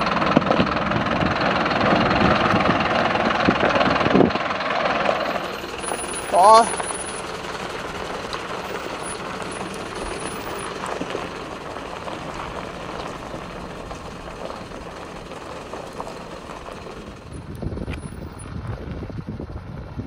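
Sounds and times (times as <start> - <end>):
wind buffeting microphone: 0.0 - 6.5, 7.2 - 20.0
diesel engine running: 0.0 - 20.0
tyres crawling over gravel: 2.5 - 18.4.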